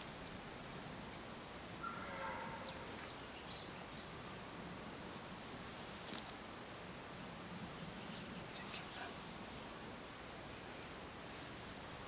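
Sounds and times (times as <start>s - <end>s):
wild birds chirping: 0.0s - 5.6s, 6.5s - 12.0s
background hiss: 0.0s - 12.0s.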